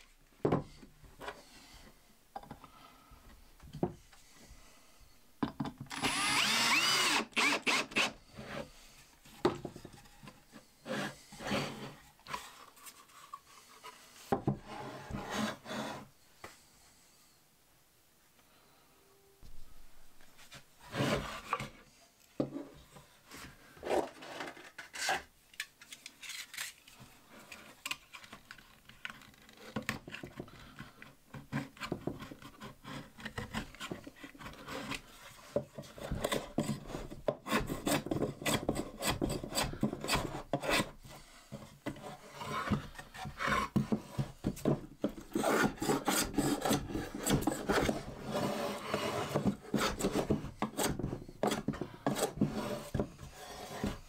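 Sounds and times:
wood being rubbed and scraped: 10.0 - 16.1, 31.5 - 54.0.

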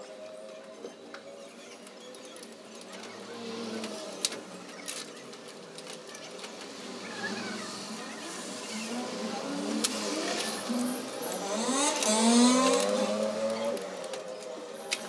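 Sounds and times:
metal parts clicking and clinking: 1.8 - 6.8, 9.8 - 15.0.

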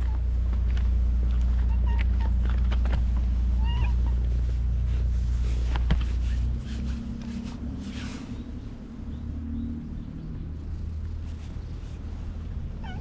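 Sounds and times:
idling engine hum: 0.0 - 13.0
cat meowing: 1.6 - 2.4, 3.6 - 4.3, 12.7 - 13.0.

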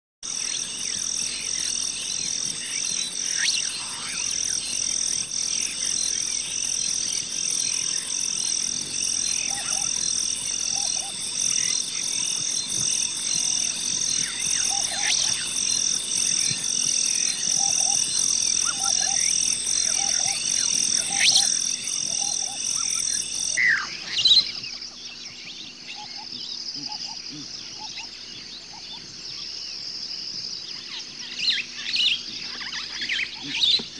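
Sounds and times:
chirps: 0.2 - 33.9
frogs croaking: 0.2 - 33.9
high-pitched pulsing chorus: 0.6 - 23.6.

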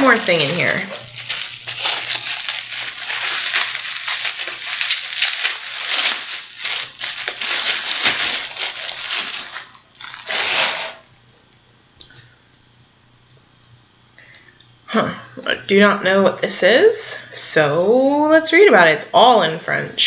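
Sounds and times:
packing material rustling: 0.0 - 11.1.

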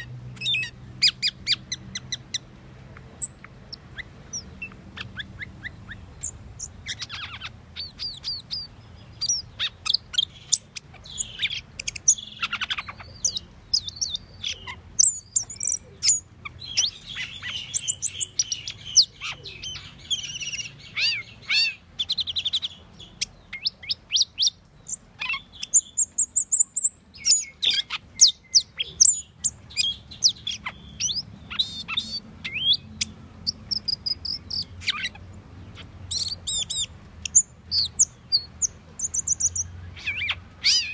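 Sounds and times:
starling singing: 0.0 - 40.9.

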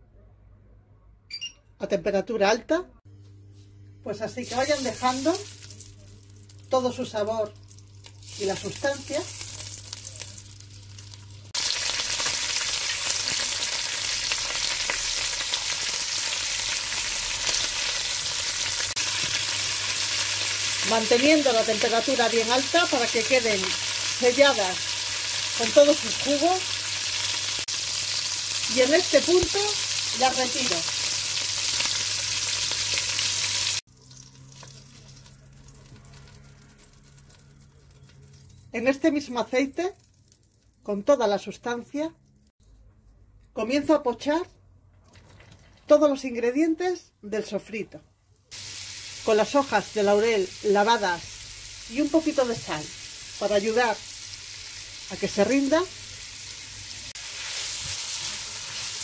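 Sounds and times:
pork ribs sizzling in hot oil: 4.4 - 38.6, 48.5 - 59.0.

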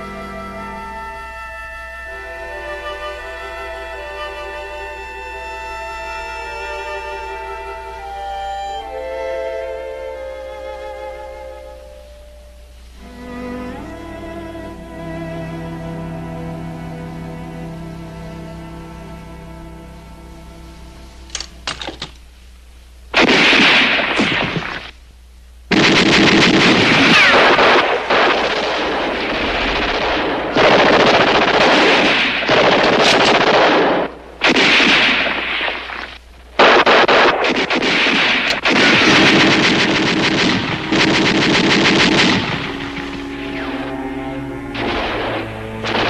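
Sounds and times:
faint music: 0.0 - 46.0
single gunshots: 23.2 - 24.9, 25.7 - 46.0
automatic gunfire bursts: 25.7 - 36.0, 36.6 - 43.2.

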